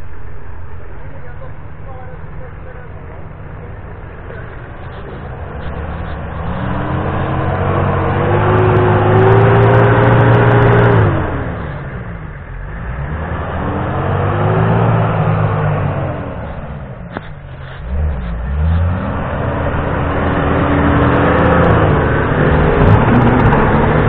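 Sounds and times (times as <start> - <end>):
suv engine revving hard: 5.1 - 12.0, 12.6 - 16.8, 17.8 - 24.0.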